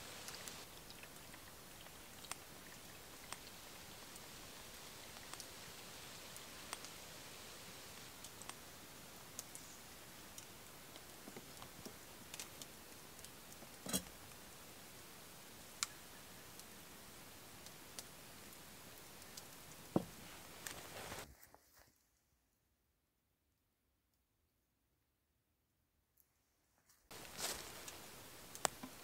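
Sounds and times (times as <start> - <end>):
faint clicks and ticks: 0.1 - 14.6, 17.6 - 19.9, 27.1 - 29.0.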